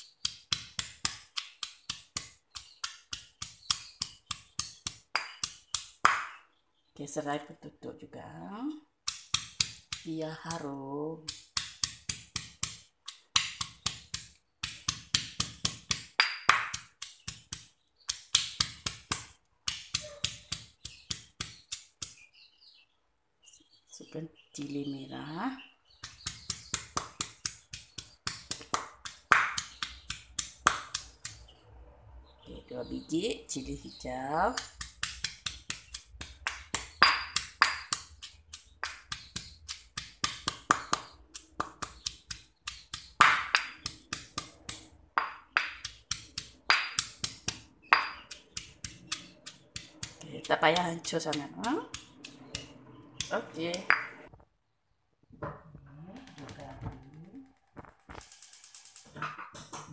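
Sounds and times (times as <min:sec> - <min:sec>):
stone pestle pounding in mortar: 0:00.0 - 0:06.4, 0:09.0 - 0:10.6, 0:11.2 - 0:22.2, 0:26.0 - 0:31.5, 0:34.4 - 0:54.3.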